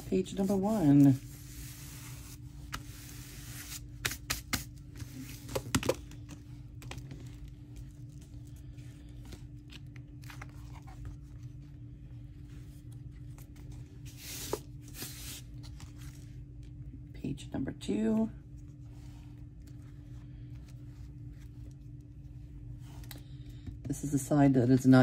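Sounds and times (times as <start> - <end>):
steady low hum: 0.0 - 25.0
paper and card rustling: 0.1 - 11.6.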